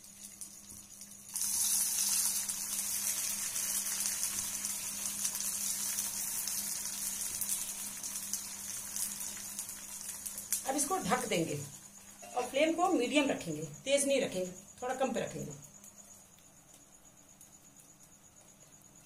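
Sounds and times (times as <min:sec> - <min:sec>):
hot oil sizzling in a pan: 0:00.0 - 0:13.3.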